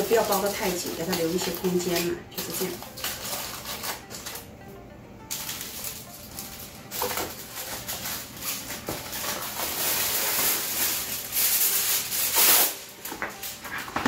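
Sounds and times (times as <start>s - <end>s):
aluminium foil crinkling: 0.0s - 4.5s, 5.3s - 14.0s.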